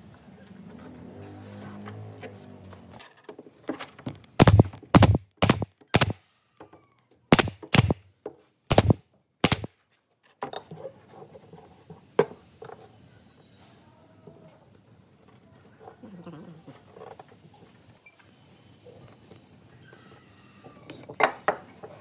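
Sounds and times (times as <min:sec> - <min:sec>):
nail gun firing into wood: 0:04.4 - 0:06.2, 0:07.3 - 0:08.1, 0:08.7 - 0:09.7.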